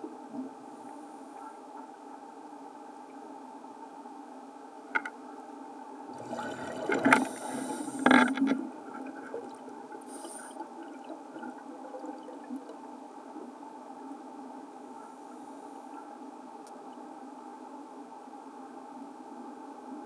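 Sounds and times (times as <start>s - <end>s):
air bubbles gurgling underwater: 6.1s - 12.8s.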